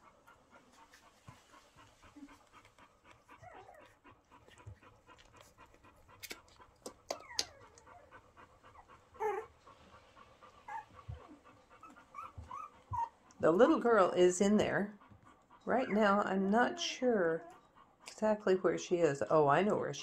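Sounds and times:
dog panting: 0.0s - 20.0s
puppies squeaking and whining: 3.3s - 6.4s, 7.0s - 9.6s, 10.6s - 13.2s, 15.8s - 17.7s.

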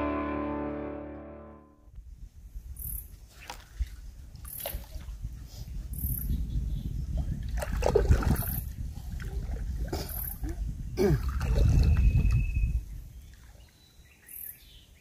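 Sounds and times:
water trickling and sloshing: 3.1s - 5.7s, 7.0s - 14.3s.

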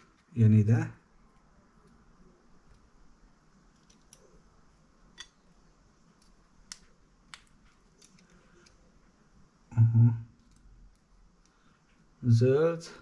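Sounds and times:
plastic connectors clicking: 6.2s - 8.8s
man humming: 9.7s - 10.3s.

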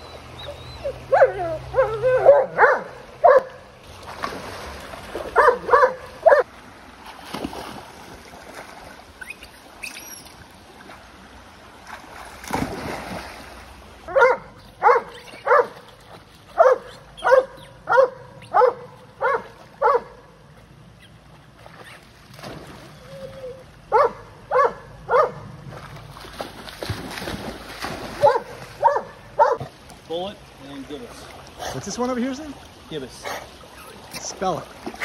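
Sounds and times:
shallow creek rushing: 0.0s - 35.0s
water splashing: 0.0s - 35.0s
dog barking and yipping: 0.6s - 3.6s, 5.4s - 6.4s, 14.1s - 15.8s, 16.6s - 20.2s, 23.9s - 25.4s, 28.2s - 29.6s.

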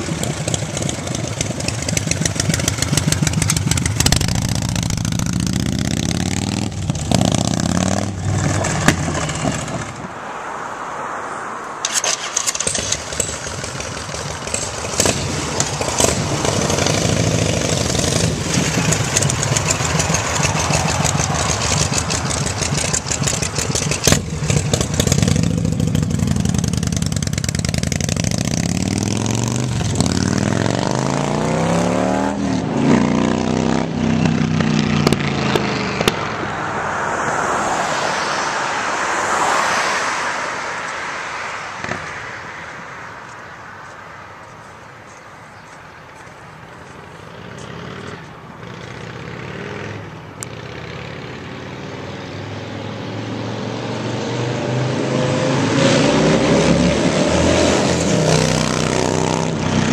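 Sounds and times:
motorcycle engine accelerating: 0.0s - 10.0s, 11.9s - 36.4s.

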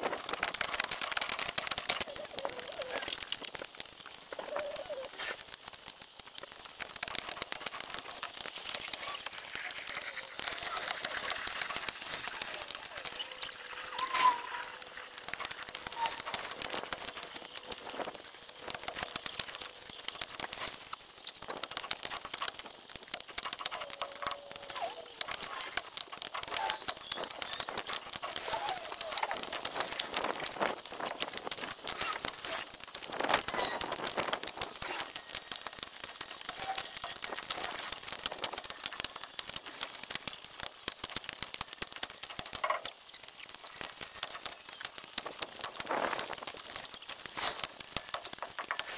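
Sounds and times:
sped-up logs clattering: 0.0s - 48.9s
short squeaky blips: 12.5s - 14.8s.

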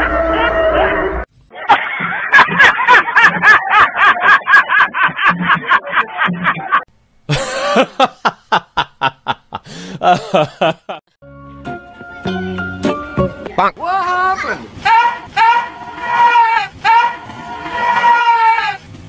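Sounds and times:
hearty human laughter: 1.5s - 11.0s.

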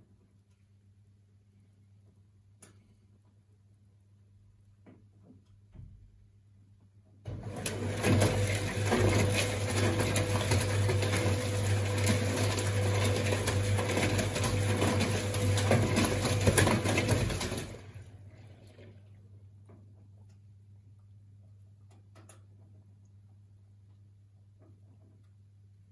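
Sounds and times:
washing machine drum spinning: 7.3s - 18.8s.

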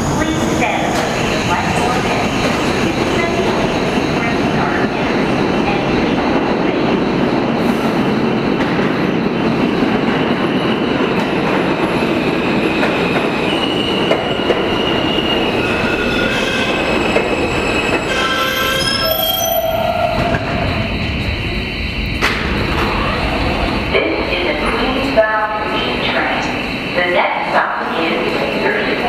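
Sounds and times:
train wheels rumbling on rail: 0.0s - 29.0s
high brake squealing: 13.5s - 20.6s.

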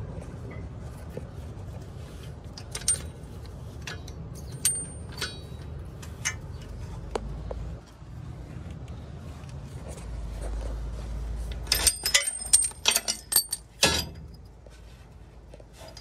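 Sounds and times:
light metallic clinks: 11.6s - 14.6s.

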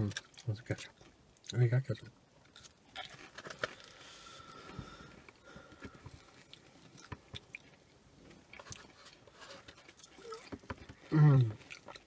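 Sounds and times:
chewing crunchy fried food: 0.0s - 1.6s, 2.3s - 4.5s, 5.2s - 12.0s.

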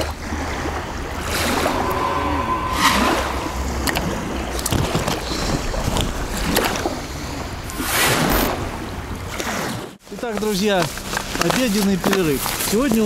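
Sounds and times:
wind buffeting microphone: 0.0s - 9.9s.

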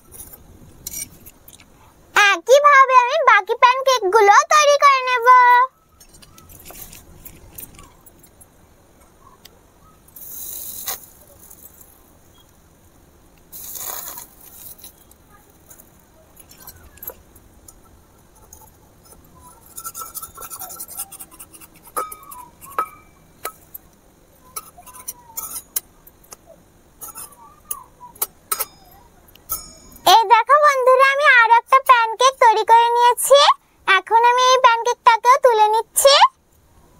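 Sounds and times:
brief hisses: 13.5s - 14.9s
metal spatula scraping iron pan: 18.4s - 23.1s.

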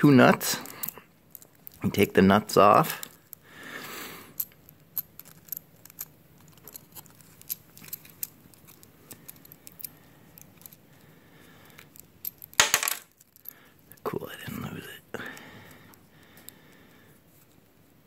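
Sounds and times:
small metal clicks: 0.6s - 1.9s, 4.4s - 10.8s, 11.6s - 14.0s
handling rustle: 4.4s - 10.9s.

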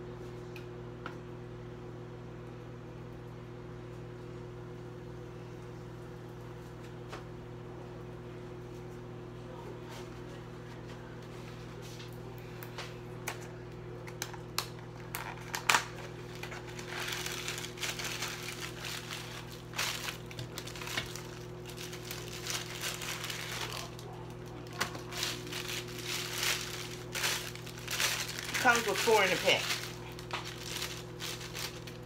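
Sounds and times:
steady low hum: 0.0s - 32.0s
plastic packaging crinkling: 14.2s - 32.0s.

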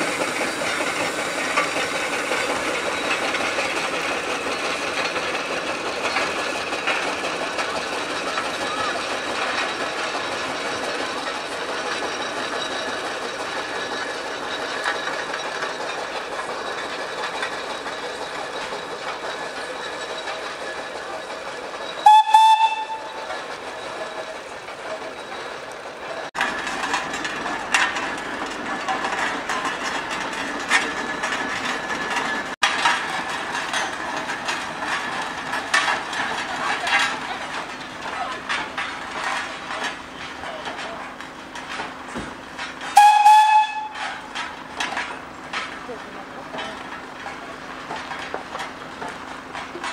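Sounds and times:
steam engines running: 0.0s - 49.9s
steam whistle blast: 22.0s - 23.1s, 43.0s - 44.0s.

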